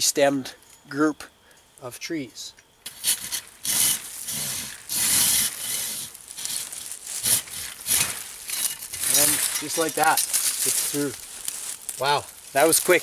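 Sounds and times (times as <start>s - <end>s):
hand saw cutting wood: 2.9s - 10.0s.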